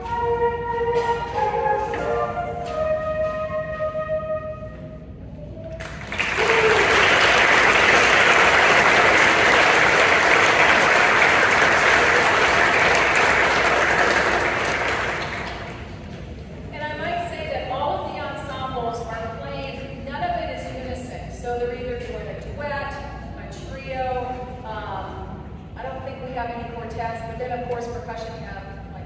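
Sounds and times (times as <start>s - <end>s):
flutes playing held notes: 0.0s - 7.0s
audience applause: 5.8s - 16.0s.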